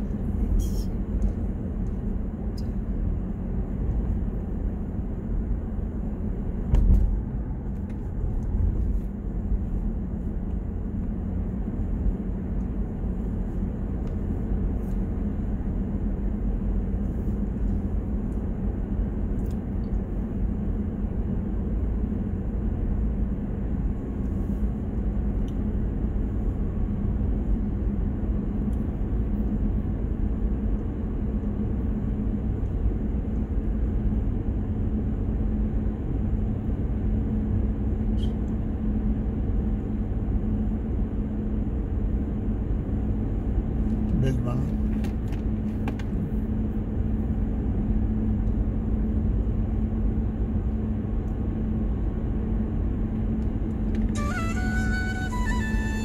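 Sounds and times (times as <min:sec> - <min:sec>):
car road noise rumble: 0:00.0 - 0:56.0
thump: 0:06.7 - 0:07.1.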